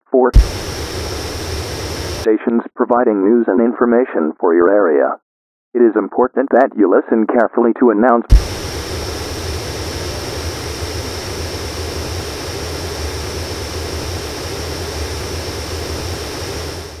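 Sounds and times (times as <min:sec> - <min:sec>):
radio static hiss: 0:00.2 - 0:02.3, 0:08.3 - 0:17.0
low hum: 0:00.4 - 0:02.3, 0:08.3 - 0:17.0.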